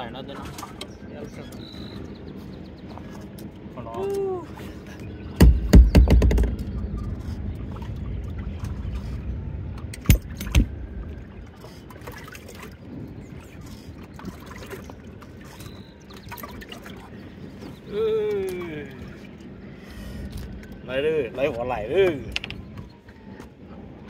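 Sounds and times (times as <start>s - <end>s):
low rumble: 5.2s - 15.4s
knocks and thumps on a boat: 5.3s - 9.1s, 9.7s - 12.8s.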